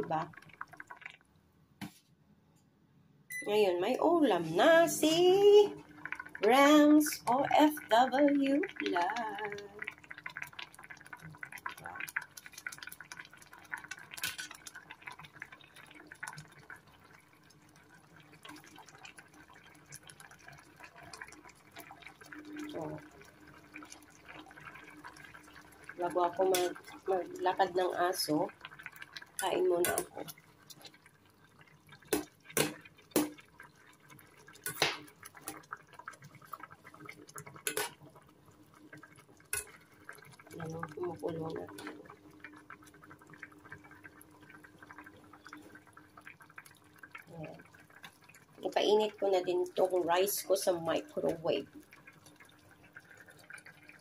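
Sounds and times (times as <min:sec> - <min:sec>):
broth bubbling in a pot: 0:00.0 - 0:01.6, 0:03.3 - 0:54.0
faint steady hum: 0:00.0 - 0:35.5
liquid sloshing: 0:17.8 - 0:50.0.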